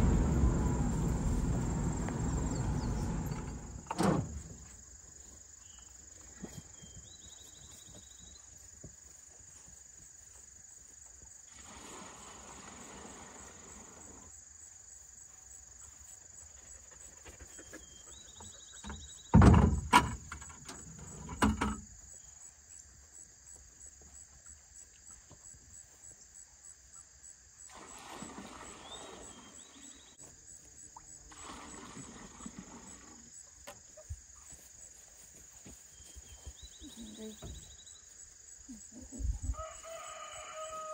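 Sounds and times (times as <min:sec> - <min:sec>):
insects chorus: 0:00.0 - 0:40.9
buckets knocking in truck bed: 0:19.4 - 0:21.9.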